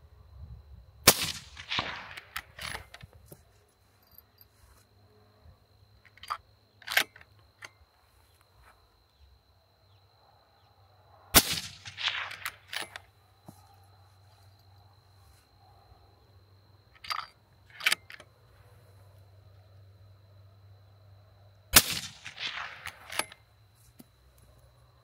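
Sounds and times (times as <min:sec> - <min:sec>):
suppressed rifle shot with echo: 0:01.0 - 0:02.8, 0:11.3 - 0:12.9, 0:21.7 - 0:23.4.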